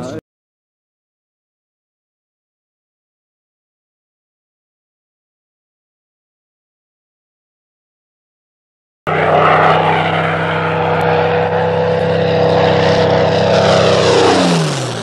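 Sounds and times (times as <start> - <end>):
plane propeller engine: 0.0 - 0.2, 9.1 - 15.0.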